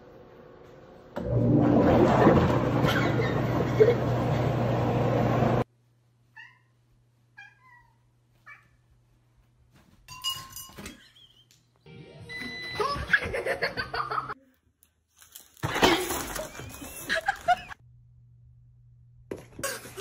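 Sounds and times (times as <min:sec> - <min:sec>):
loud humming noise: 0:01.2 - 0:05.6
cat meowing: 0:07.4 - 0:08.8
ceiling fan clatter and ringing: 0:10.1 - 0:11.0.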